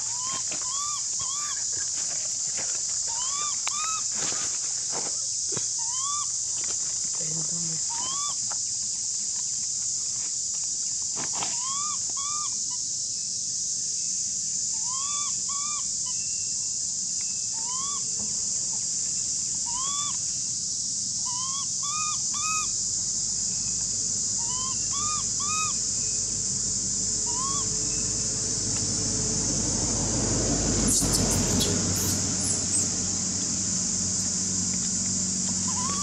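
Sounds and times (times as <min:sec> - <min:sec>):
high-pitched insect drone: 0:00.0 - 0:36.0
rising and falling animal calls: 0:03.1 - 0:04.0, 0:27.3 - 0:27.8, 0:30.8 - 0:33.0, 0:35.7 - 0:36.0.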